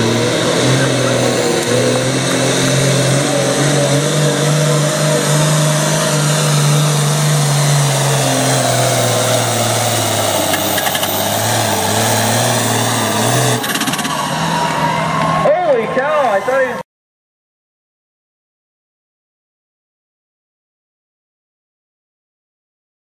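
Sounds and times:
diesel tractor engine under load: 0.0s - 16.8s.

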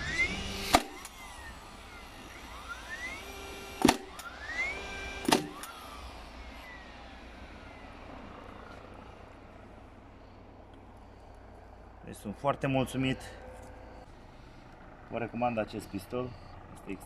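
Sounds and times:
nail gun motor whining: 0.0s - 12.0s
nail gun firing bang: 0.6s - 1.2s, 3.8s - 4.3s, 5.2s - 5.8s.

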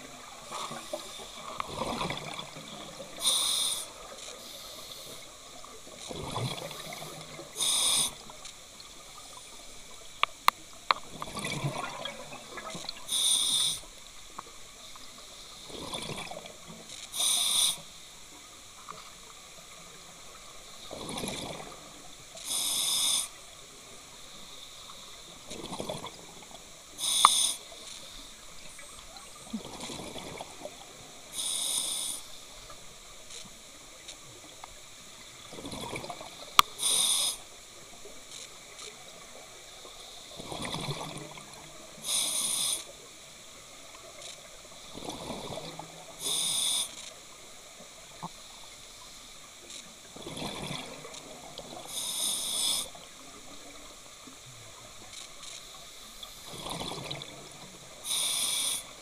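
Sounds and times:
hissing regulator inhale: 3.2s - 5.3s, 6.8s - 8.3s, 13.1s - 13.9s, 17.1s - 17.9s, 22.4s - 23.4s, 27.0s - 28.2s, 31.3s - 32.4s, 36.7s - 37.5s, 42.0s - 42.9s, 46.2s - 47.0s, 51.9s - 53.0s, 58.0s - 59.0s
sharp clicks: 27.1s - 27.5s
gurgling exhaled bubbles: 56.5s - 57.6s.

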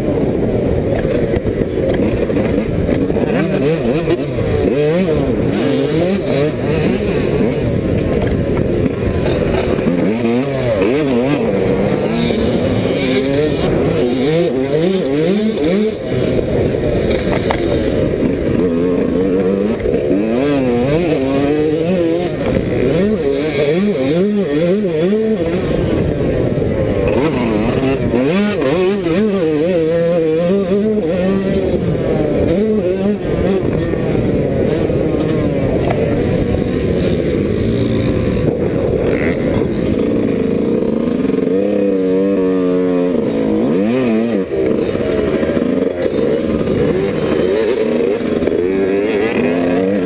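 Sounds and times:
motocross engine revving: 0.0s - 50.0s.

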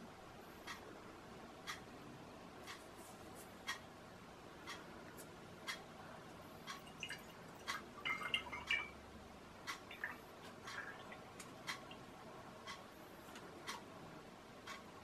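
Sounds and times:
steady ticking: 0.6s - 2.9s, 3.6s - 15.0s
liquid dripping into a bottle: 6.6s - 9.0s, 9.7s - 12.1s.

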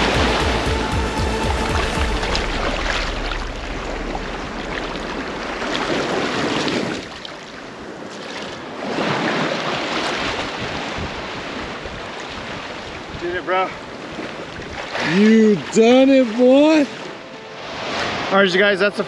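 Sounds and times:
shallow surf washing: 0.0s - 19.0s
water sloshing around legs: 1.6s - 10.7s.

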